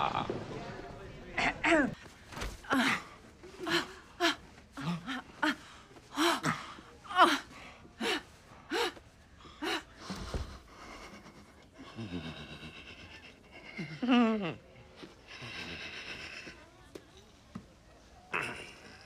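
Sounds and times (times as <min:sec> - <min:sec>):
woman moaning and gasping: 0:02.6 - 0:09.0.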